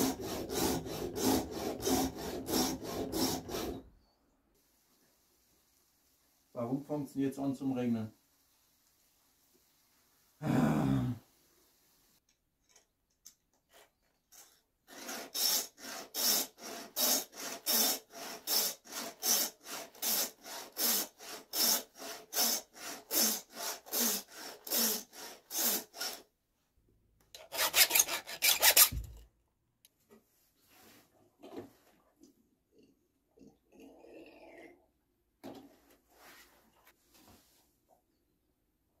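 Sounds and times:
file rasping on chainsaw chain: 0.0s - 3.8s, 14.9s - 26.2s, 27.4s - 29.0s.

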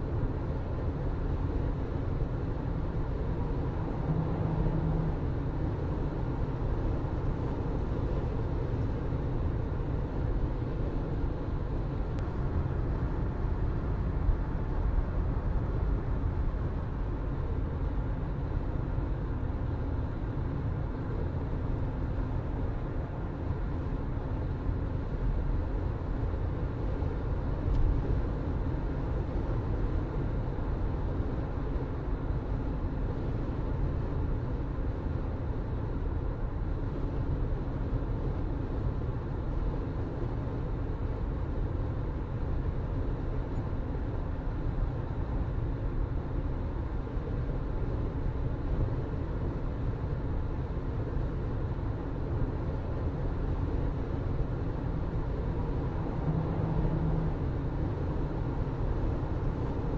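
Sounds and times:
car engine and road hum: 0.0s - 59.9s.

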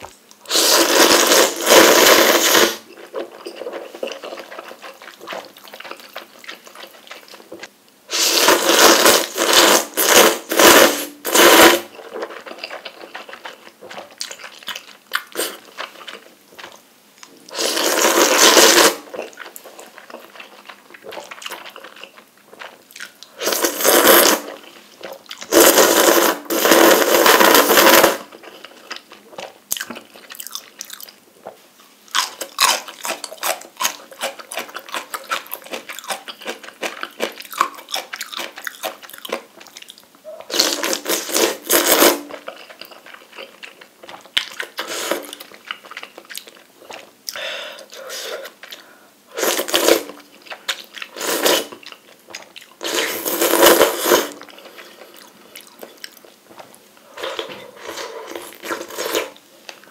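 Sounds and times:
loud noodle slurps: 0.4s - 2.9s, 8.1s - 11.9s, 17.5s - 19.1s, 23.4s - 24.6s, 25.4s - 28.4s, 40.5s - 42.4s, 44.8s - 45.4s, 49.3s - 50.2s, 51.1s - 51.8s, 52.8s - 55.0s, 57.2s - 59.4s
wet chewing: 2.9s - 7.7s, 12.0s - 17.4s, 32.1s - 40.0s.

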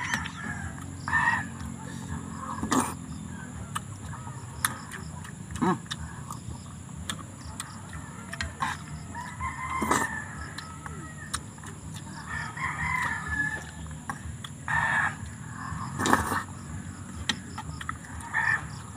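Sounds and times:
rooster crowing: 0.0s - 1.6s, 7.9s - 14.0s, 14.7s - 15.9s, 18.2s - 18.9s
chickens clucking: 0.0s - 18.9s.

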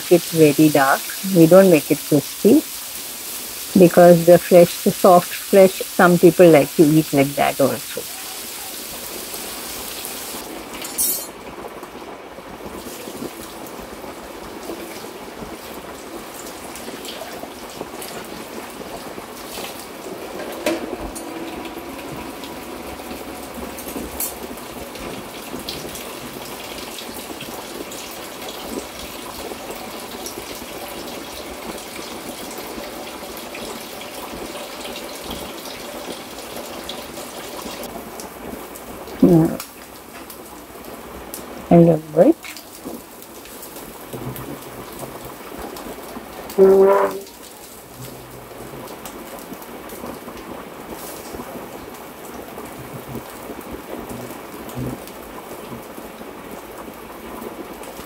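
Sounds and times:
fish sizzling in a pan: 1.8s - 11.4s, 50.8s - 51.7s.

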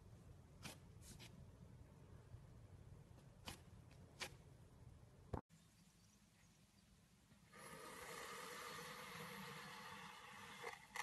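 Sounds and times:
knife slicing kinetic sand: 0.5s - 1.4s, 3.4s - 4.5s.

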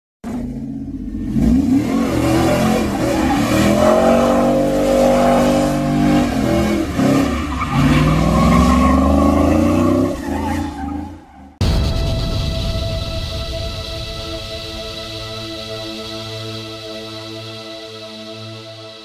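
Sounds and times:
car engines revving hard: 0.2s - 11.2s
tyre squeal: 7.0s - 11.5s.

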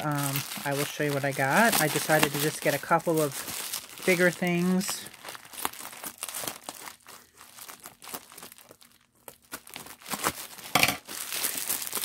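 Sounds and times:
bubble wrap crackling: 0.0s - 12.0s.

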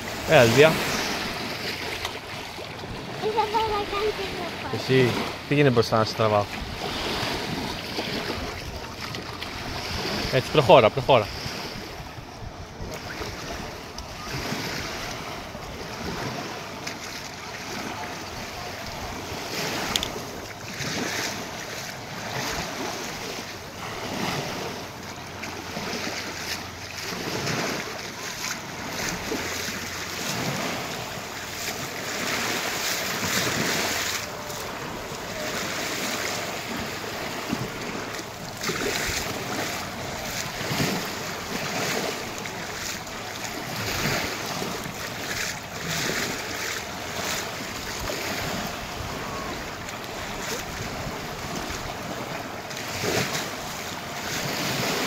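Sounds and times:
small waves lapping on shore: 0.0s - 55.0s
wind buffeting microphone: 11.3s - 16.5s.

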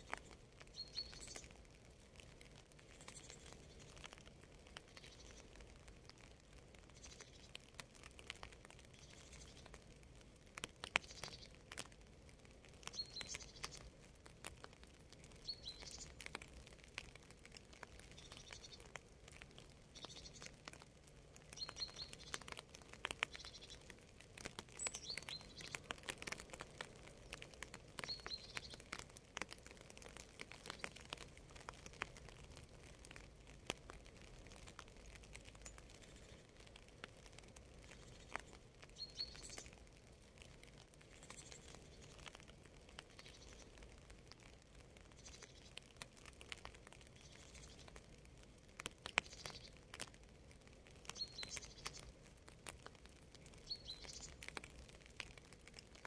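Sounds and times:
bird chirping: 0.0s - 1.5s, 12.9s - 13.9s, 15.4s - 16.1s, 20.0s - 20.5s, 21.5s - 22.5s, 23.2s - 23.9s, 24.7s - 25.8s, 28.0s - 28.9s, 37.9s - 39.7s, 51.2s - 52.0s, 53.6s - 54.4s
light rain pattering: 0.0s - 56.0s.

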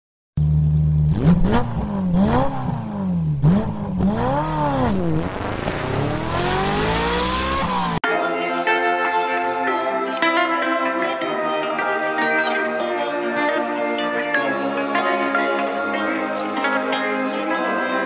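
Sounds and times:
engine revving sound effect: 0.4s - 8.0s
guitar music: 8.1s - 18.0s.

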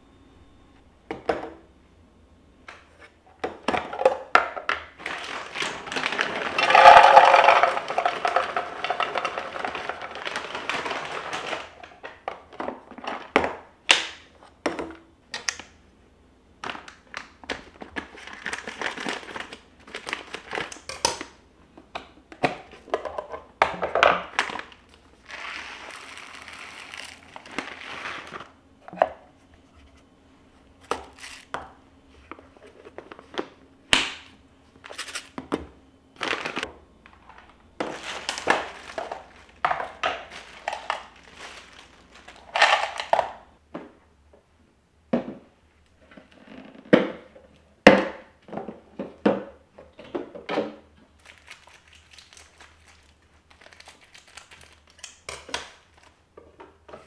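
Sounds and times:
plastic packaging crinkling: 5.0s - 12.2s, 16.6s - 21.3s, 24.2s - 28.5s, 31.0s - 31.5s, 34.8s - 35.4s, 36.2s - 43.2s, 51.1s - 56.2s
rice pouring into a container: 6.0s - 9.5s.

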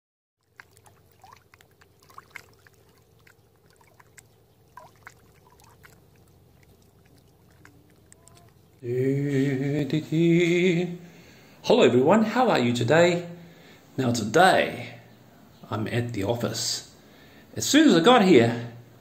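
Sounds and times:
water gurgles and drips: 0.4s - 8.8s
water lapping among rocks: 0.4s - 8.8s.

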